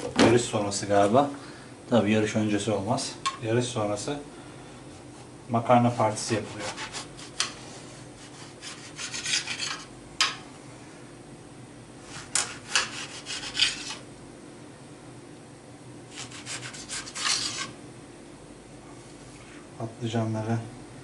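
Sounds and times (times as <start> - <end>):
kitchen utensil scraping: 6.3 - 10.4, 12.1 - 14.0, 16.1 - 17.8.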